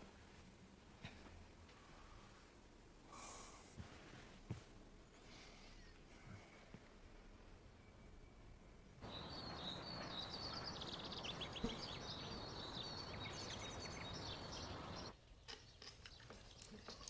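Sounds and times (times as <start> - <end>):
steady background hiss: 0.0 - 15.8
small birds chirping: 9.0 - 17.0.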